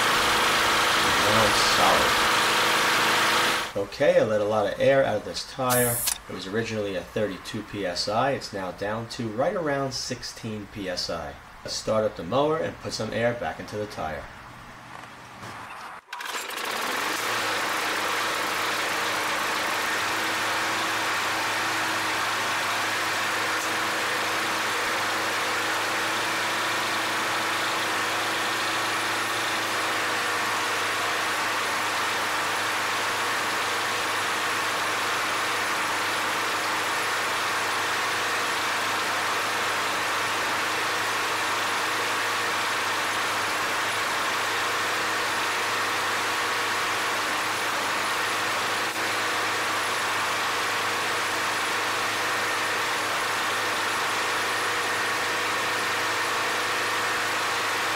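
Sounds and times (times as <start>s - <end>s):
lawn mower engine running: 0.0s - 3.8s, 16.1s - 57.9s.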